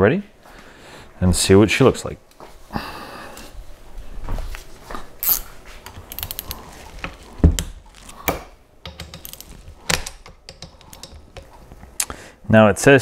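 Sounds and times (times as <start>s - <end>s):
ratchet wrench clicking: 5.2s - 5.4s, 8.9s - 11.2s.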